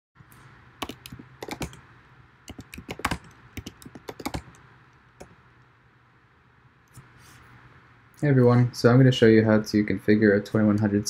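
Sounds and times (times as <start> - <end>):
faint low hum: 0.2 - 11.0
keyboard key clicks: 0.8 - 1.8, 2.5 - 4.6.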